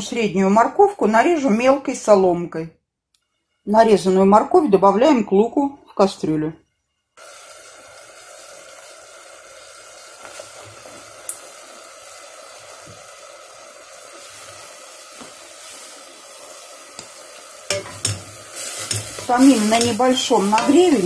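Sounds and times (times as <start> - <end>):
vegetables sizzling in a pot: 7.2 - 21.0.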